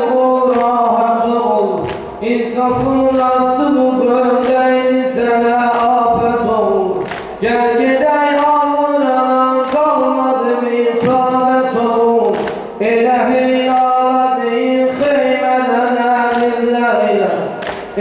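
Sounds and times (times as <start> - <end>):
chest-beating slaps: 12.2 - 12.7.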